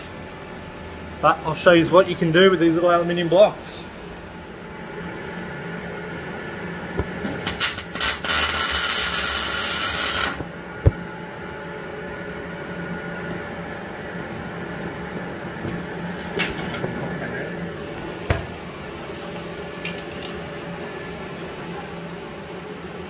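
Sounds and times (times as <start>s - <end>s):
welding arc hissing: 7.2s - 10.4s.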